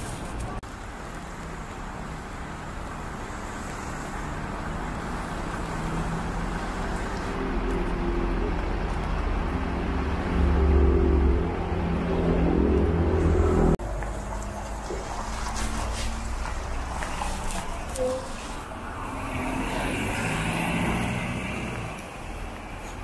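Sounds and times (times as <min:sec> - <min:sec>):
bus engine approaching: 0:00.0 - 0:23.0
wet road noise: 0:00.0 - 0:23.0
heavy rain hiss: 0:00.7 - 0:07.6.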